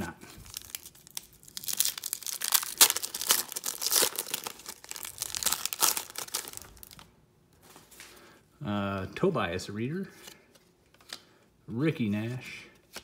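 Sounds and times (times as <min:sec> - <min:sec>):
foil wrapper tearing and crinkling: 0:00.3 - 0:07.1.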